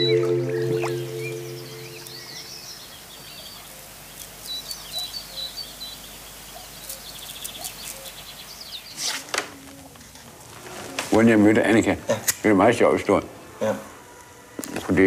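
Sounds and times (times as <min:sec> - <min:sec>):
birds chirping: 0:00.0 - 0:03.7
steady light hiss: 0:00.3 - 0:09.3.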